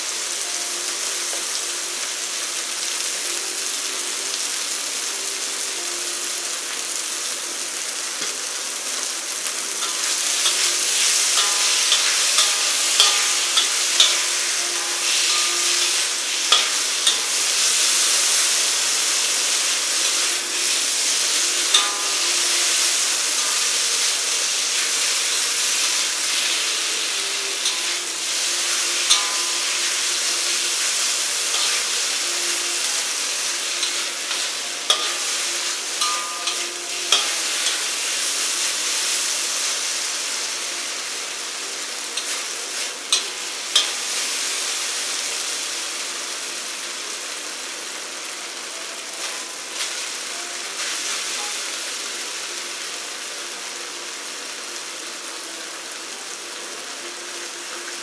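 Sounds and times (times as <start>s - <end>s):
noodles sizzling in a wok: 0.0s - 58.0s
metal spatula scraping a wok: 9.8s - 19.0s, 19.7s - 26.6s, 27.6s - 38.8s, 42.2s - 44.3s.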